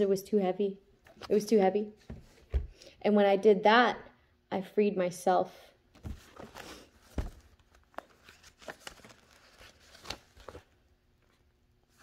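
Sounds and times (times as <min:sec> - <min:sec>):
paper rustling: 0:06.0 - 0:12.0.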